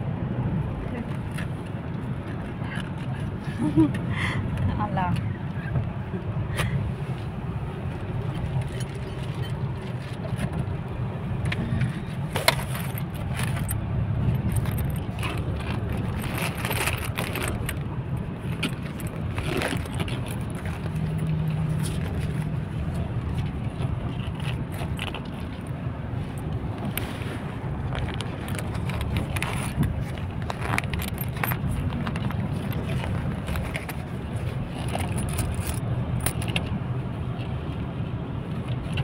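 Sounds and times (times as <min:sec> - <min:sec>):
car road and engine rumble: 0:00.0 - 0:39.0
rustling: 0:11.8 - 0:36.5.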